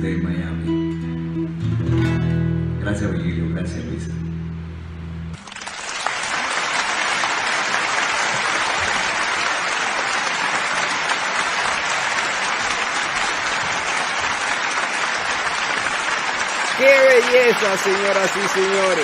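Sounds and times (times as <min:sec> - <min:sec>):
acoustic guitar chord: 0:00.5 - 0:05.4
applause: 0:05.4 - 0:19.0.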